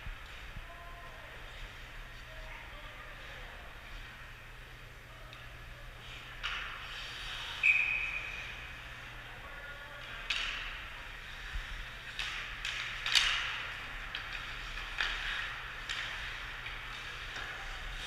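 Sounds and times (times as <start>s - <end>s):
hockey sticks and puck clacking: 5.2s - 18.0s.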